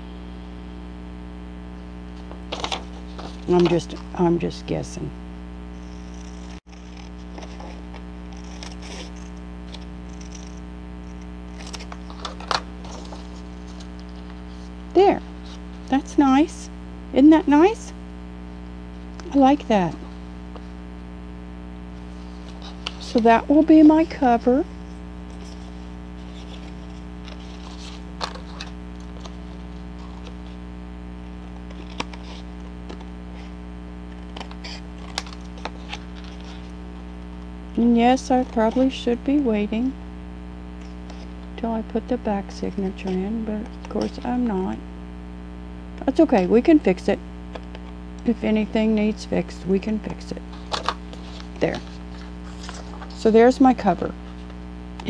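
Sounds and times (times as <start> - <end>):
electrical hum: 0.0 - 55.0
paper rustling and tapping: 2.2 - 3.8, 26.2 - 29.4
paper handling clicks and taps: 2.2 - 3.9, 31.7 - 33.1, 34.1 - 36.7.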